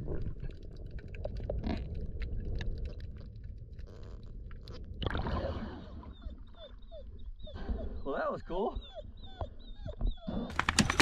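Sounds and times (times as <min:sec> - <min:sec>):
underwater clicks and crackles: 0:00.0 - 0:05.6, 0:10.0 - 0:11.0.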